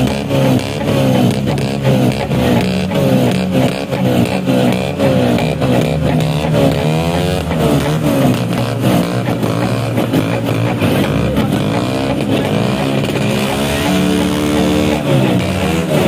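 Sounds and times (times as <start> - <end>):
scooter engines revving: 0.0 - 16.0.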